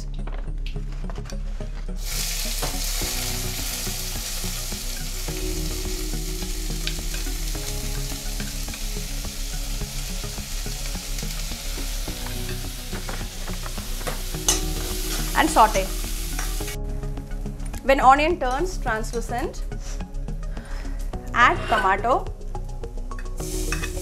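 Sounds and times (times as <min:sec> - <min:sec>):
onions sizzling in hot oil: 0:02.0 - 0:16.8, 0:23.4 - 0:24.0.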